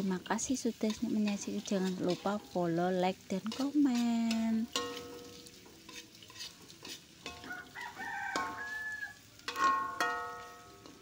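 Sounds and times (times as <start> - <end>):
light sizzling: 0.0 - 11.0
metal spatula scraping wok: 0.0 - 11.0
rooster crowing: 7.3 - 9.7.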